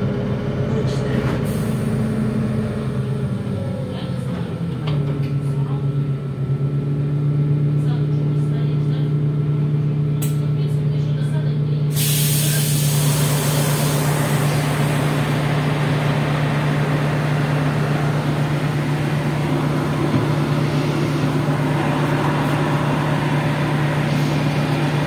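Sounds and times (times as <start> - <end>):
bus engine idling: 0.0 - 25.0
compressed air hiss: 11.9 - 15.2.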